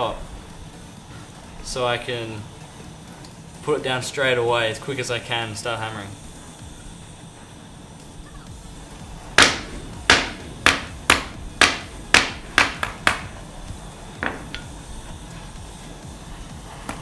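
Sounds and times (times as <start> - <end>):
hammer striking metal: 9.4 - 13.4, 14.2 - 14.8.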